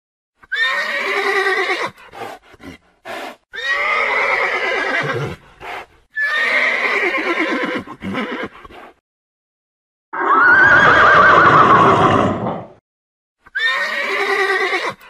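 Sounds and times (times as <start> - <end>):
horse whinnying: 0.4 - 2.0, 3.6 - 5.4, 6.1 - 8.9, 10.2 - 12.7, 13.5 - 15.0.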